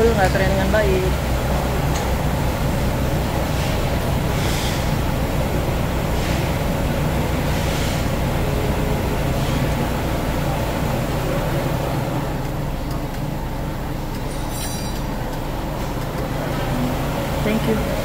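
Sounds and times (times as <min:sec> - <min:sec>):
low mechanical rumble and hum: 0:00.0 - 0:18.0.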